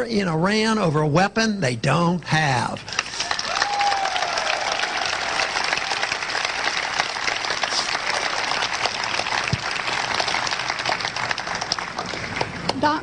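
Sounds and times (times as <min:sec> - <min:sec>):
crowd applauding: 0:02.8 - 0:13.0.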